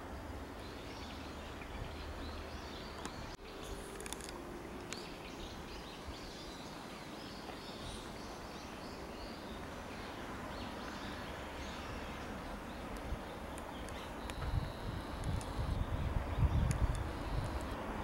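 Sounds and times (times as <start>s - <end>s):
outdoor background noise: 0.0s - 18.0s.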